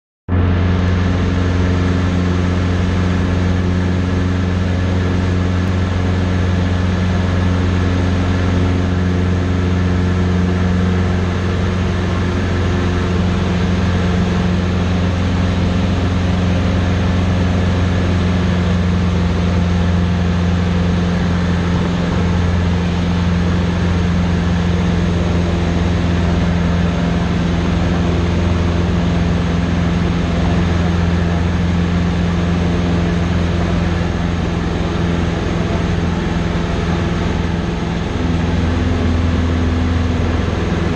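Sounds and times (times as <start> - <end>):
small plane engine and propeller: 0.3 - 40.9.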